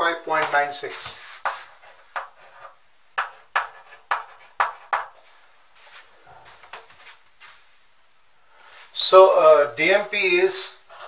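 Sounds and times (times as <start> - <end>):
chalk tapping on blackboard: 0.4 - 5.3.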